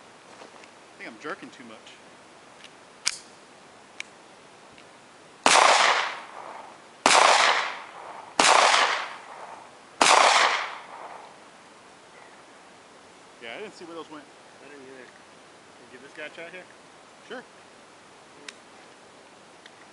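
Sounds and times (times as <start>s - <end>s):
gunshots: 5.4s - 11.3s.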